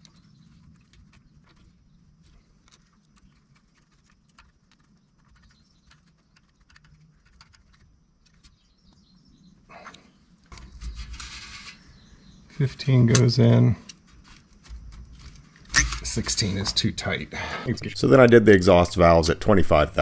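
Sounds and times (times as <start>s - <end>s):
low steady hum: 7.1s - 20.0s.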